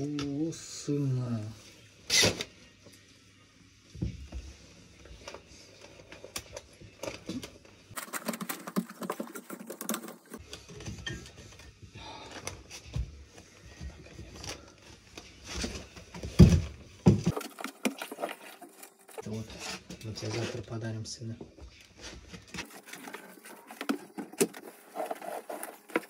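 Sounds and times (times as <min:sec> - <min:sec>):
paper wrapping rustling: 0:05.3 - 0:10.7, 0:17.3 - 0:20.6, 0:22.0 - 0:26.0.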